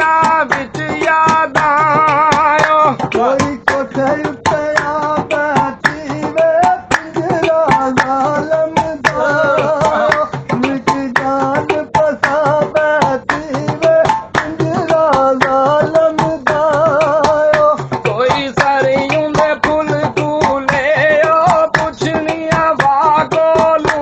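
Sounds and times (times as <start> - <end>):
person singing with vibrato: 0.0 - 24.0
sharp percussion strokes: 0.0 - 24.0.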